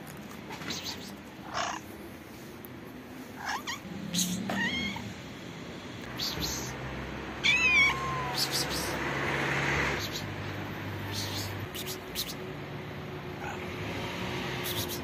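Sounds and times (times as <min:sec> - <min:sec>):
cats meowing: 0:00.5 - 0:01.9, 0:03.4 - 0:05.2, 0:07.4 - 0:09.0.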